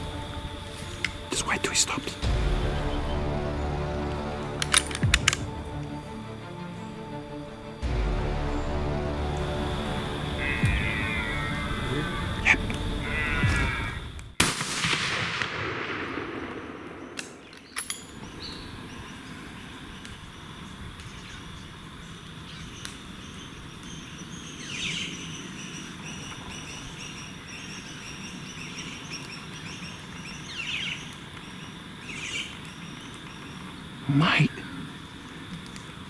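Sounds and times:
birds chirping: 0:00.0 - 0:14.4, 0:15.2 - 0:36.0
rifle shot: 0:04.6 - 0:05.6, 0:14.4 - 0:18.0
faint clicks: 0:22.7 - 0:23.2, 0:34.8 - 0:36.0.

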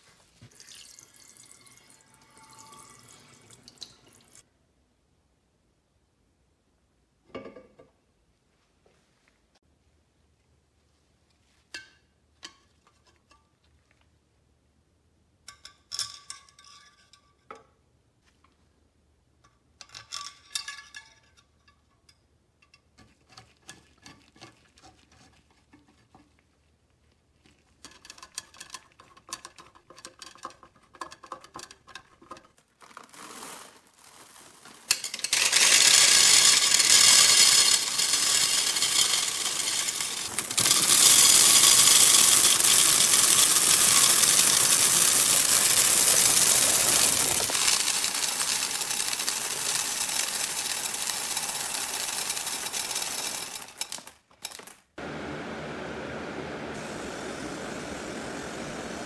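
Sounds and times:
candies pouring into glass globe: 0:32.8 - 0:54.6.

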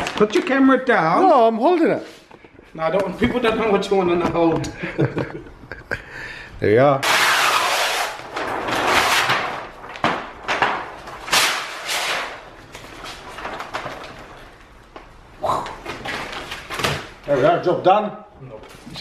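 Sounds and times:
vinyl film rustling and crackling: 0:00.0 - 0:03.9, 0:07.0 - 0:17.4.

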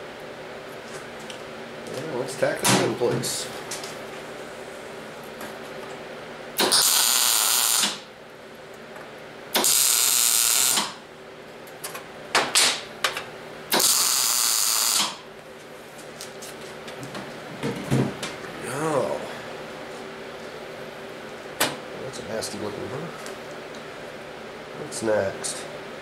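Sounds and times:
welding arc crackling: 0:06.6 - 0:08.0, 0:09.6 - 0:11.0, 0:13.7 - 0:15.2.

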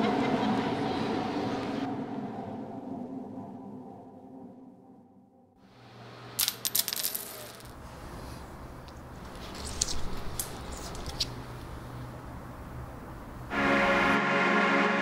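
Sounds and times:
coins clinking on tile floor: 0:06.4 - 0:07.8.

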